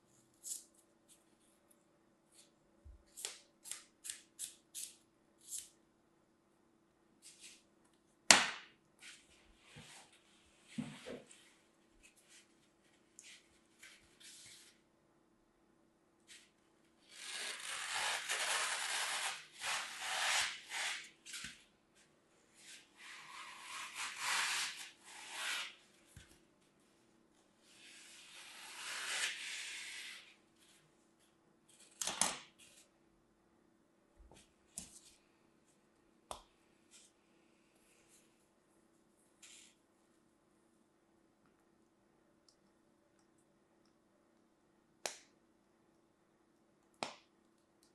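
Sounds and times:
sharp crack: 8.3s - 8.7s
floral foam gritty rasping: 17.1s - 21.0s.

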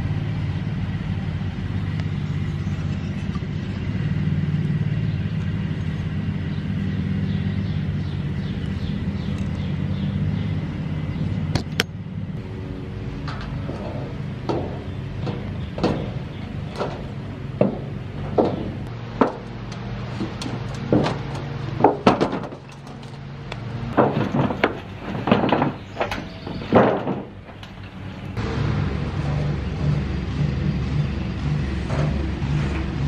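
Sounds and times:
low hum: 0.0s - 33.0s
log thudding on sheet metal: 13.2s - 23.2s, 23.9s - 27.8s.

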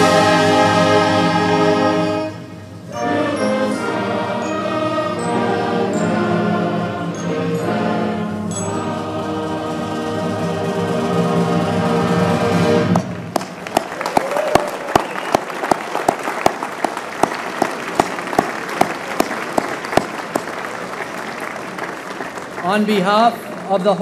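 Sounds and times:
choral music: 0.0s - 13.7s
close loud hand claps: 13.0s - 22.7s
crowd applauding: 13.3s - 24.0s.

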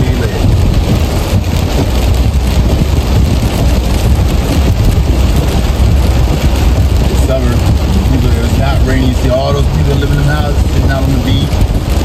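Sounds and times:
car road and wind noise: 0.0s - 12.0s.

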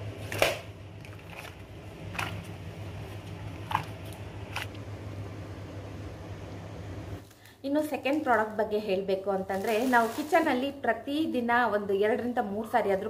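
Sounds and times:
steady low hum: 0.0s - 9.4s.

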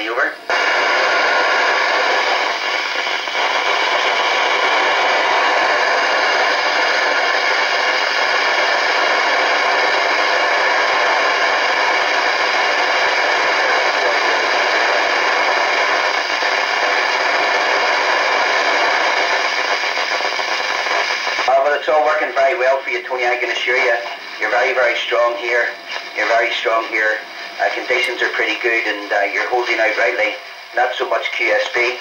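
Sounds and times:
radio static hiss: 0.0s - 32.0s.

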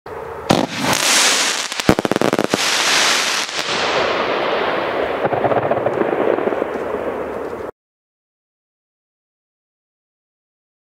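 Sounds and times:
crackling pops: 0.5s - 3.7s
firework fountain hissing: 0.5s - 5.0s.

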